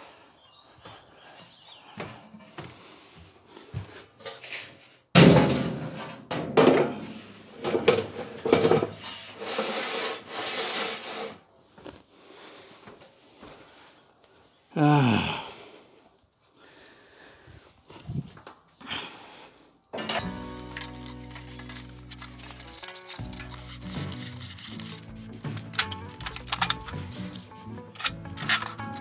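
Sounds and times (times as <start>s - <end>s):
knocking and scraping: 4.2s - 11.4s
loud metal clunk: 5.2s - 7.0s.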